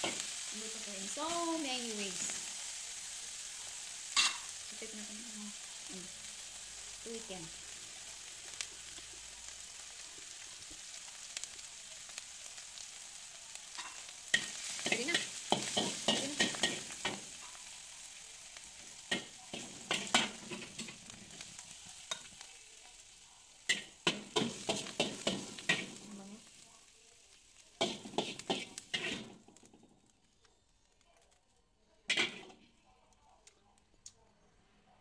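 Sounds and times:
food sizzling in a wok: 0:00.0 - 0:33.4
metal spatula scraping pan: 0:27.8 - 0:29.4.

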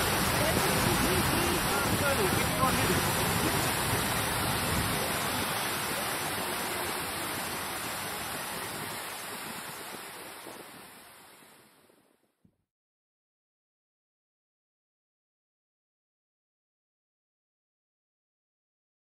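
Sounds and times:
fountain water splashing: 0:00.0 - 0:12.1.

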